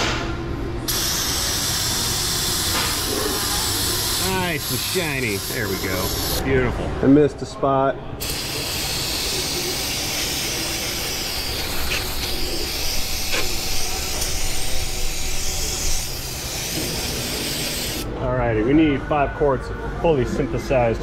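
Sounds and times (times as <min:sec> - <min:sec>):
aerosol spray can hissing: 0:00.9 - 0:06.4, 0:08.2 - 0:18.1.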